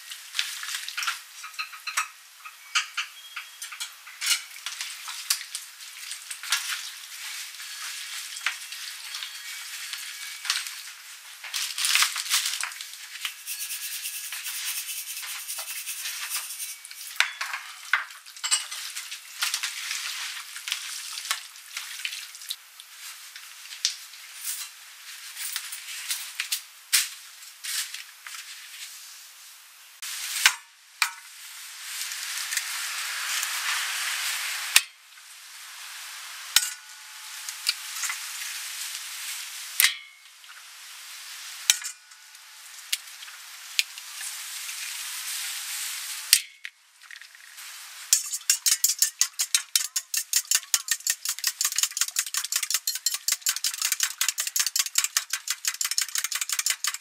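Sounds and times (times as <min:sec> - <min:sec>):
metal whisk beating in bowl: 0:13.3 - 0:17.3, 0:48.2 - 0:57.0
eggs cracking on steel bowl: 0:48.2 - 0:57.0.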